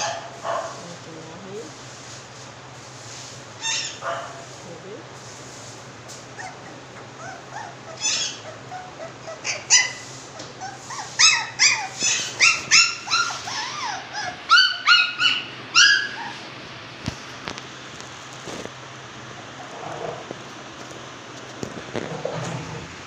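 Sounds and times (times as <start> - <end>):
puppies yipping and yelping: 3.6 - 4.4, 6.2 - 16.6, 19.2 - 20.3.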